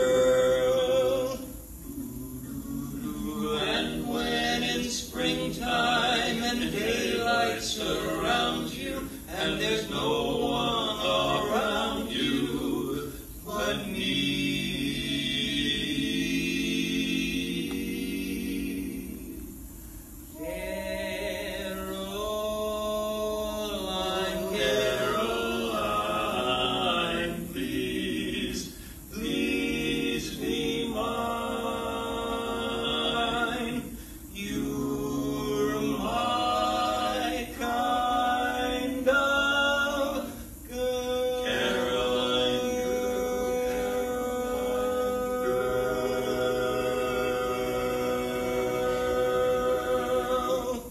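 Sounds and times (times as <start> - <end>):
men's chorus singing a cappella: 0.0 - 19.7, 20.4 - 50.9.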